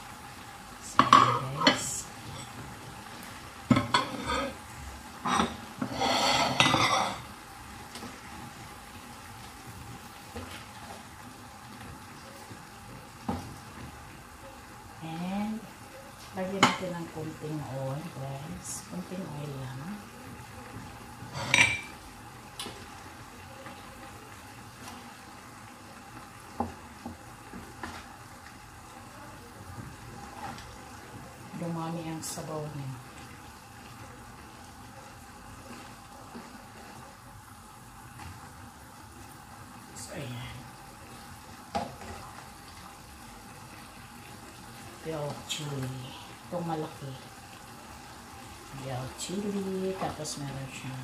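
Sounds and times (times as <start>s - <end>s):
faint frying sizzle: 0.0s - 51.0s
utensil clattering in frying pan: 0.9s - 2.6s, 3.6s - 4.6s, 5.2s - 7.3s, 16.6s - 16.9s, 21.3s - 22.0s.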